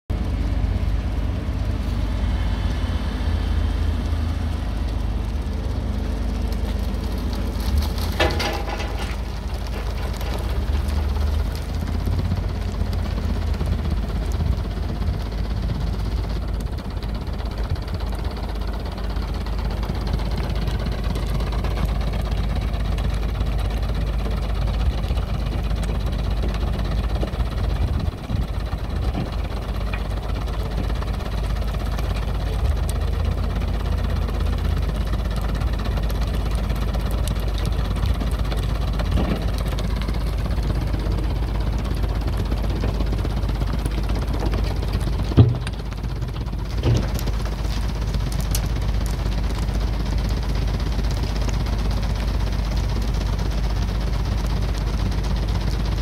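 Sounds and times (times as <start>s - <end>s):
diesel loader engine running: 0.1s - 56.0s.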